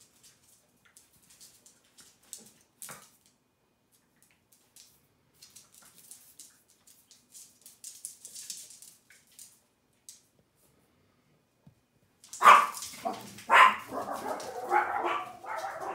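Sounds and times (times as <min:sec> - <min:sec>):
dog claws scrabbling on floor: 0:00.0 - 0:03.4, 0:04.0 - 0:10.3, 0:12.2 - 0:15.9
small dog barking: 0:12.4 - 0:15.9.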